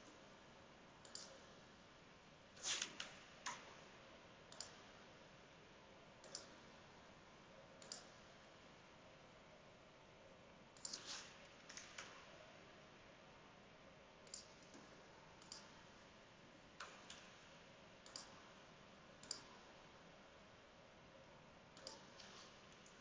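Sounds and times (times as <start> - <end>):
computer mouse clicks: 1.0 - 1.5, 4.5 - 4.8, 6.2 - 6.6, 7.8 - 8.2, 10.8 - 12.2, 14.2 - 15.8, 16.8 - 17.3, 18.0 - 18.4, 19.2 - 19.7, 21.8 - 23.0.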